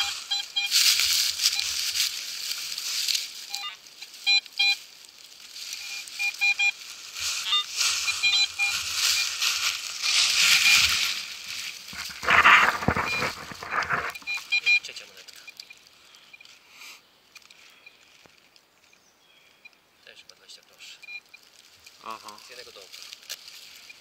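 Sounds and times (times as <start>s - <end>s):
metal detector beeps: 0.0s - 1.8s, 3.4s - 4.8s, 5.7s - 6.8s, 7.4s - 9.4s, 10.1s - 11.2s, 12.0s - 16.5s, 20.9s - 21.4s
leaves and soil rustling: 0.0s - 19.0s, 20.0s - 24.0s.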